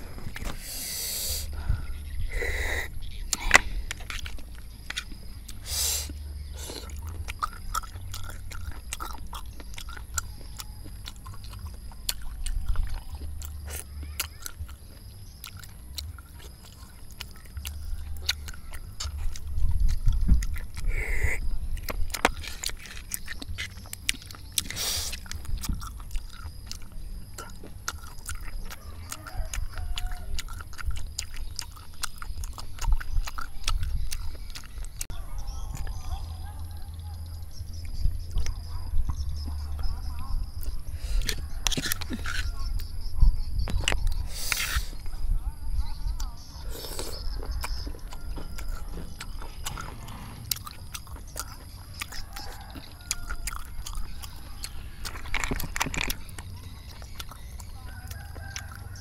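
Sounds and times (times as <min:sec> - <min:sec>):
close chewing: 0:00.0 - 0:59.0.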